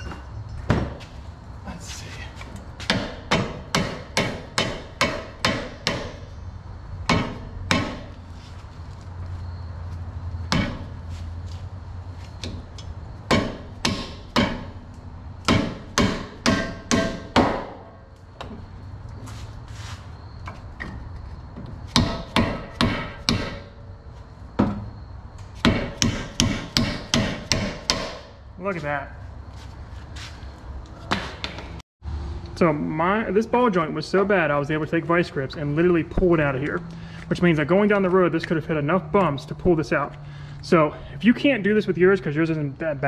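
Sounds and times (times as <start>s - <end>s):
hammer striking metal: 2.9s - 6.3s, 7.1s - 8.1s, 10.5s - 10.9s, 13.3s - 14.8s, 15.4s - 18.0s, 21.9s - 23.8s, 25.6s - 28.4s.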